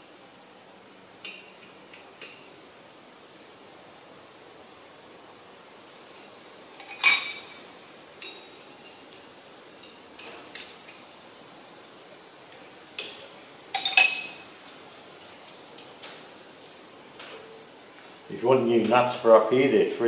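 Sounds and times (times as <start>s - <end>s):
metal spanners and nuts clinking: 6.8s - 9.0s, 13.7s - 14.5s.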